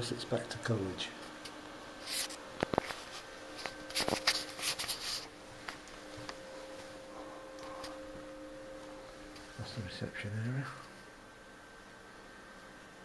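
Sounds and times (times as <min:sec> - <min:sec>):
steady low hum: 0:00.0 - 0:13.0
camera handling rustling: 0:02.2 - 0:05.3.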